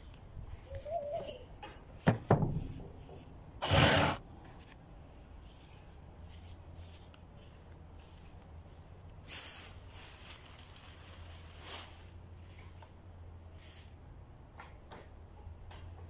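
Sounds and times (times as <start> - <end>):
plastic chair knocks: 2.0 - 2.6
plastic chair scraping: 3.6 - 4.2.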